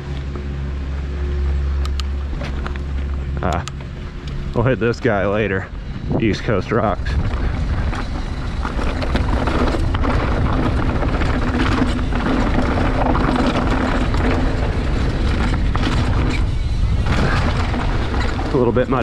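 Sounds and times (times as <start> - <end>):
bike clicks and rattles: 0.0 - 19.0
steady hum: 0.0 - 19.0
wind rushing over microphone: 4.3 - 19.0
tyres crunching over stones: 6.4 - 19.0.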